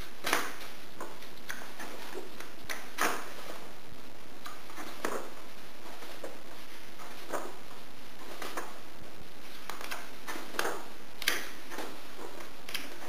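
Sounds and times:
book pages turning: 4.4s - 8.8s, 9.4s - 13.0s.

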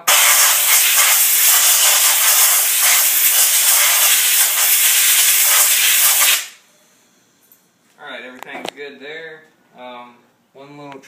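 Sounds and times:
compressed air blow gun hissing: 0.0s - 6.6s.

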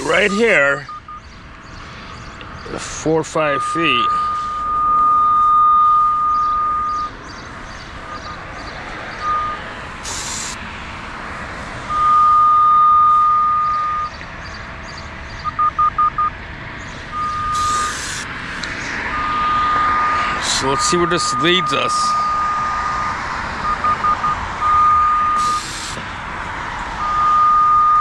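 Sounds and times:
locator beeping tone: 0.1s - 1.3s, 3.2s - 7.2s, 8.0s - 8.5s, 9.2s - 9.7s, 11.9s - 14.2s, 15.4s - 16.3s, 17.1s - 18.2s, 18.9s - 25.8s, 27.0s - 28.0s
bursts of hiss: 10.0s - 10.6s, 17.5s - 18.3s, 25.4s - 26.1s.

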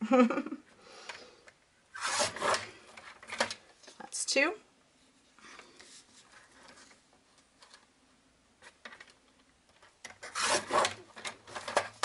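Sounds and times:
paper trimmer scraping: 2.0s - 2.7s, 10.2s - 11.0s.

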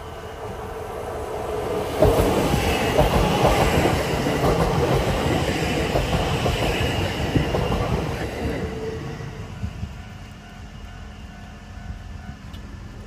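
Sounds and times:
train wheels clattering over rails: 1.7s - 10.6s.

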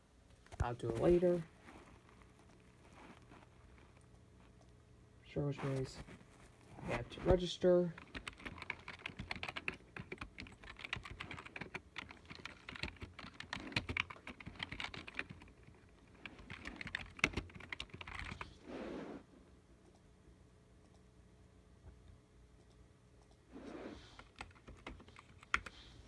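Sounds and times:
typing on computer keyboard: 7.9s - 18.5s, 24.2s - 25.7s.

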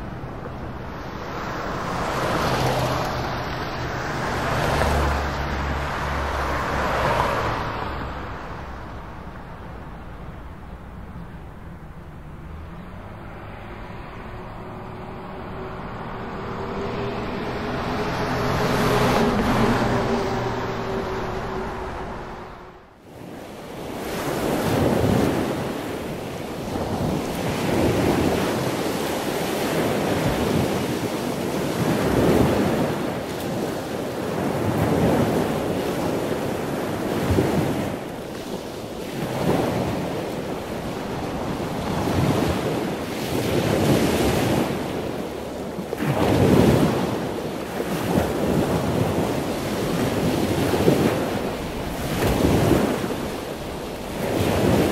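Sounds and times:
ocean surf washing: 0.0s - 54.9s.

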